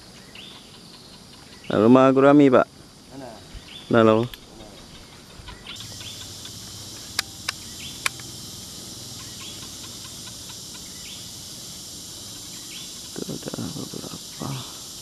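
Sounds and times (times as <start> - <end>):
bird chirps: 0.0 - 2.0, 3.4 - 15.0
insects droning: 0.0 - 15.0
sharp clicks: 4.2 - 8.4.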